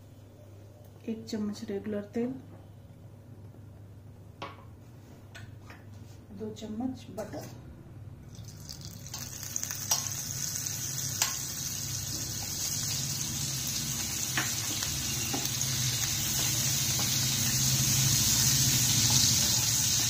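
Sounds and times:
butter sizzling in a pan: 8.4s - 20.0s.

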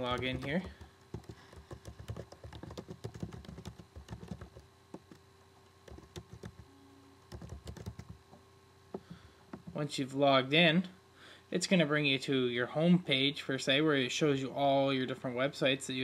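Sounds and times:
typing on computer keyboard: 0.0s - 5.2s, 5.8s - 6.6s, 7.3s - 8.2s.

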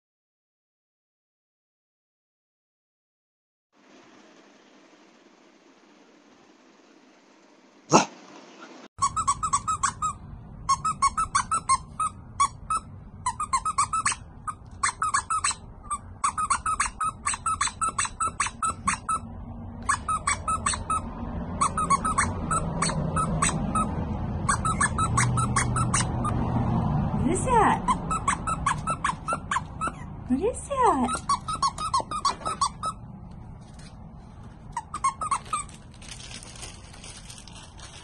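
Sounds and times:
puppies yipping: 9.0s - 26.4s, 27.4s - 33.1s, 34.7s - 35.8s.

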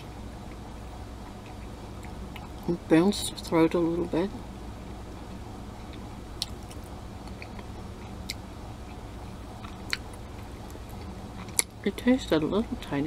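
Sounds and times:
steady low hum: 0.0s - 13.0s
person chewing: 1.3s - 2.7s, 5.8s - 9.0s, 9.6s - 11.8s.

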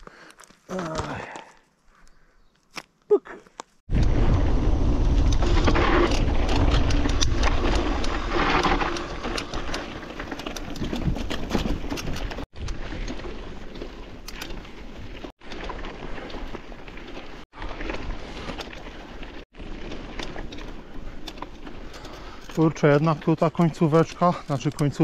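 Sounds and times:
bike tyres crunching on gravel: 0.0s - 25.0s
bike frame rattle: 5.4s - 25.0s.

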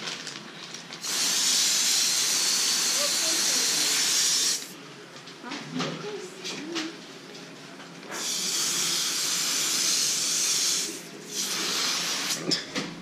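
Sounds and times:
hose spray nozzle hissing: 1.0s - 4.8s.

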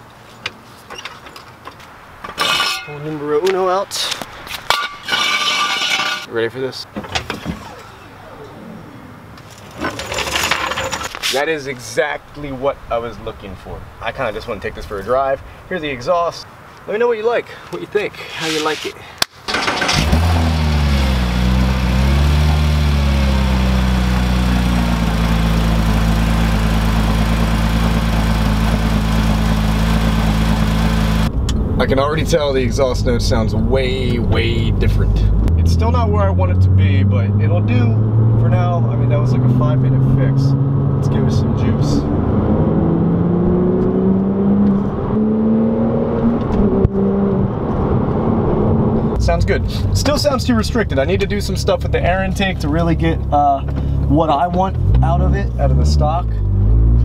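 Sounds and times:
car engine starting and idling: 7.2s - 10.0s, 19.4s - 45.1s.

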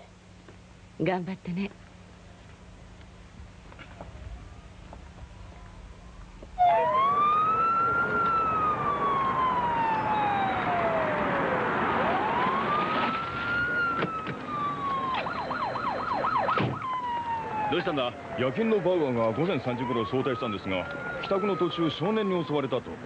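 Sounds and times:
steady rush of noise: 0.0s - 15.9s
police siren wailing: 6.5s - 23.0s.

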